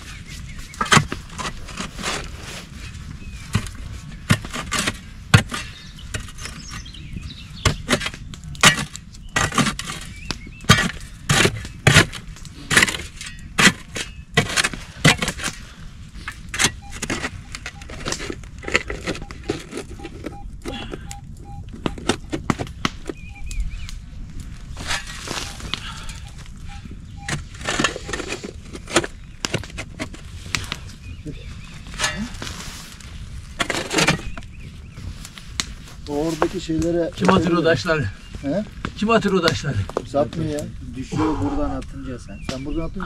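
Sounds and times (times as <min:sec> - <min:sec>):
loose soil shifting: 0:00.0 - 0:43.0
digging tool striking stony soil: 0:00.2 - 0:02.2, 0:03.5 - 0:07.0, 0:07.6 - 0:15.6.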